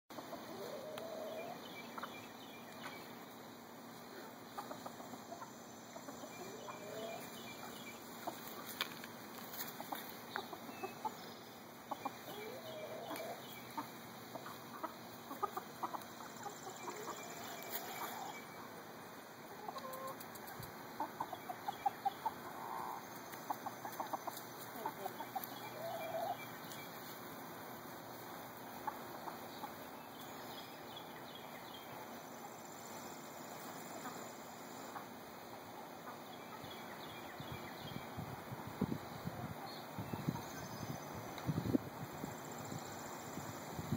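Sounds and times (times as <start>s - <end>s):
hens clucking: 0.1s - 3.0s, 4.0s - 18.7s, 19.5s - 27.2s, 27.9s - 30.0s.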